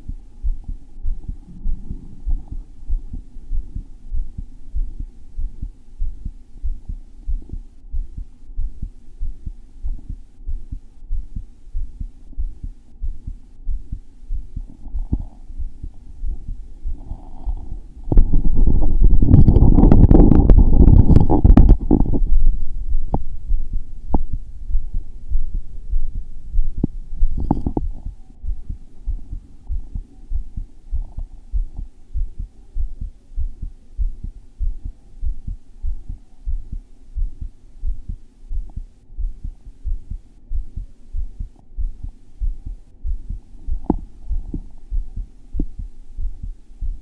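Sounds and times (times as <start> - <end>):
heart beating low thumps: 0.0 - 47.0
microphone rubbing: 0.0 - 47.0
microphone handling clicks: 17.5 - 22.4, 26.8 - 28.1.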